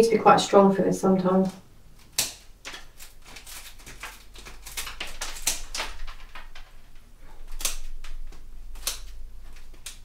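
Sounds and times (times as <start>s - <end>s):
scissors snipping stems: 1.4s - 5.9s, 7.4s - 10.0s.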